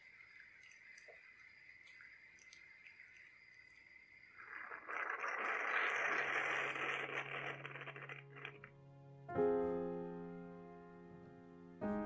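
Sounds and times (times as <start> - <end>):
coffee maker hissing and sputtering: 4.3 - 8.6
piano chord: 8.2 - 12.0.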